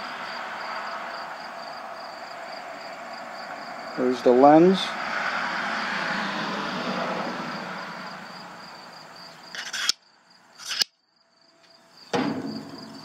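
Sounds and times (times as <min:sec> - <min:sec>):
short scrapes: 0:09.5 - 0:10.0, 0:10.6 - 0:10.9.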